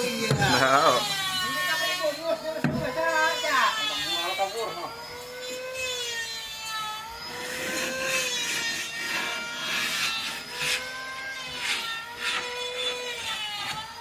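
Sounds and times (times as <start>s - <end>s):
power tool whining: 0.0s - 14.0s
rasping on wood: 7.3s - 14.0s.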